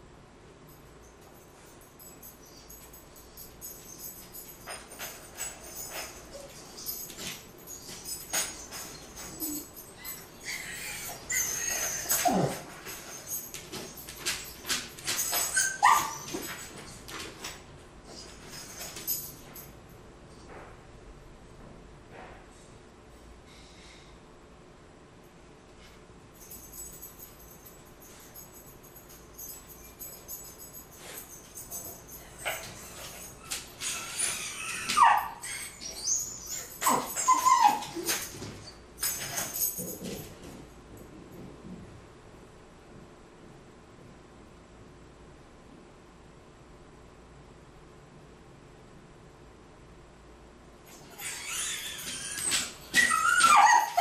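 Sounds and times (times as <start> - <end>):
small dog whining and yipping: 5.9 - 13.4, 15.2 - 16.6, 32.4 - 38.8, 51.0 - 54.0.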